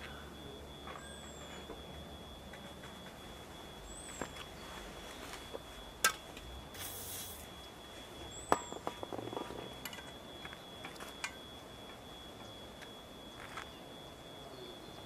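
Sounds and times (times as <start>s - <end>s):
bird chirping: 0.1s - 2.1s, 3.7s - 5.3s, 8.2s - 9.4s.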